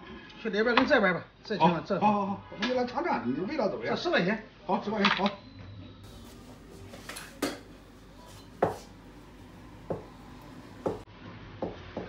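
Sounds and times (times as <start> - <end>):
cleaver chopping on cutting board: 6.1 - 11.0.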